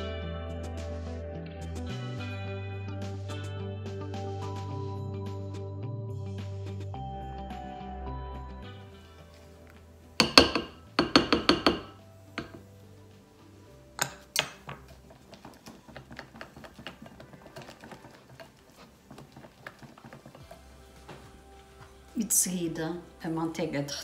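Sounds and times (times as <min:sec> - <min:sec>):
background music: 0:00.0 - 0:24.0
spatula clinking glass bowl: 0:10.2 - 0:12.6
whisk beating batter: 0:14.4 - 0:21.8.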